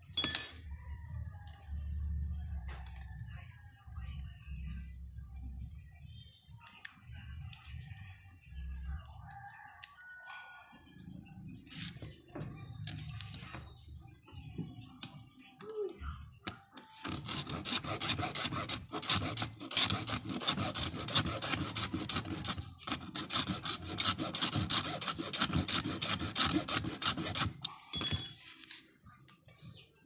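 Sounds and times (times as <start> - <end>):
hacksaw blade scraping: 17.0 - 27.8.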